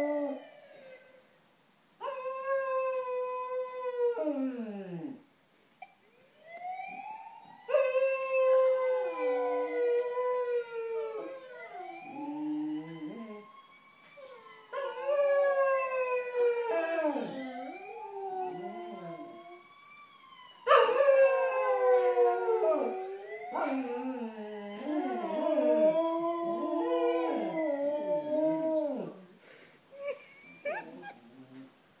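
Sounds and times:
ambulance siren: 0.0s - 1.3s, 6.1s - 29.1s
dogs howling: 20.7s - 29.2s.

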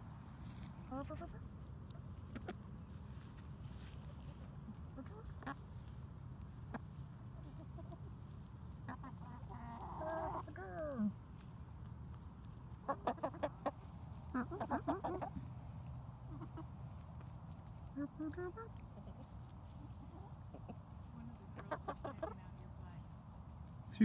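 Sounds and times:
hens clucking: 0.0s - 24.0s.

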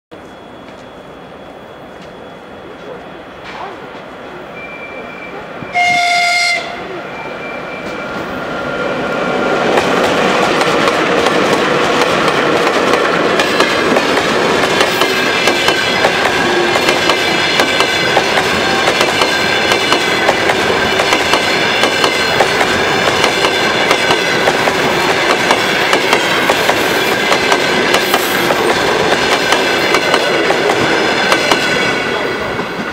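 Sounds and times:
train wheels clicking over rail joints: 9.7s - 32.9s.

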